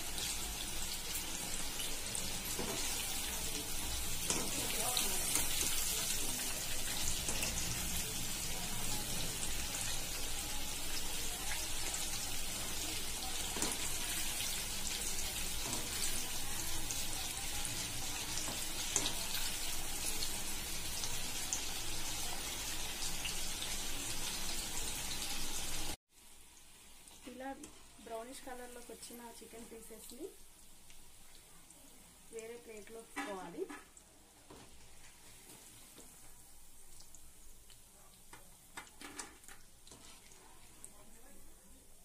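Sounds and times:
chicken deep-frying in oil: 0.0s - 42.0s.

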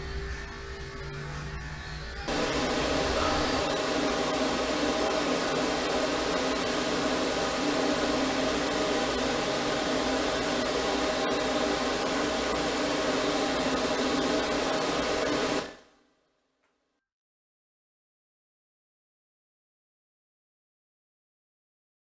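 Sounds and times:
blow dryer running: 2.3s - 15.8s.

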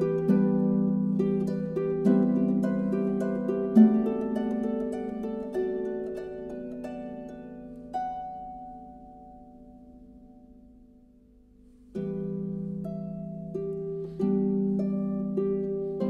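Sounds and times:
plucked string music: 0.0s - 10.6s.

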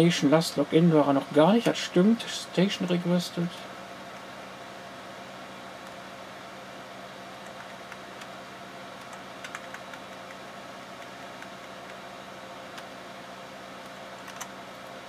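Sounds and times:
computer fans humming: 0.0s - 15.0s
keyboard key presses: 9.0s - 10.4s, 13.8s - 14.6s.

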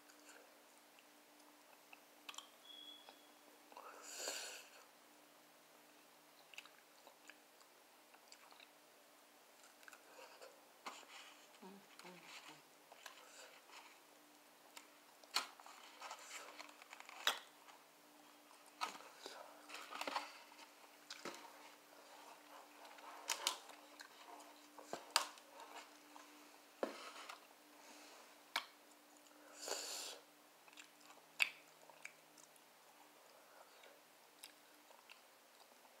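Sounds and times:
chewing with sharp clicks: 1.7s - 3.2s, 6.5s - 8.8s, 30.6s - 32.6s, 33.7s - 35.8s
food crunch: 14.7s - 17.6s.

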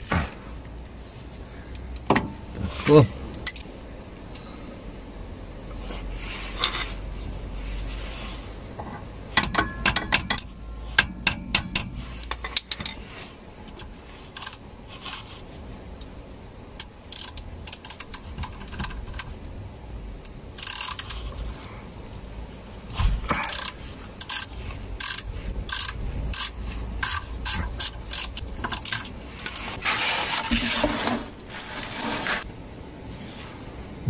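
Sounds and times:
ratchet clicking: 16.8s - 19.3s, 20.2s - 21.3s, 23.3s - 29.7s.

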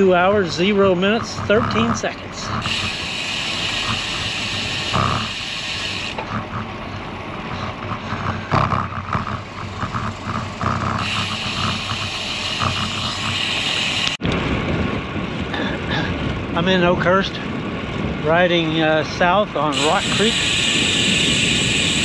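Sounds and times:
steady high buzz: 0.0s - 14.3s, 19.6s - 22.0s
bicycle road noise: 0.0s - 22.0s
wind rushing over microphone: 7.6s - 22.0s.

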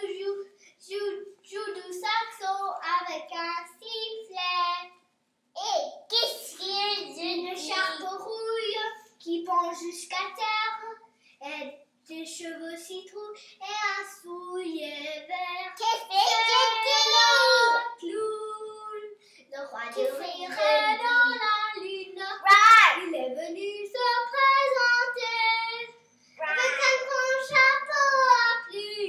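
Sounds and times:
child singing unaccompanied: 6.3s - 11.0s, 12.1s - 29.0s.

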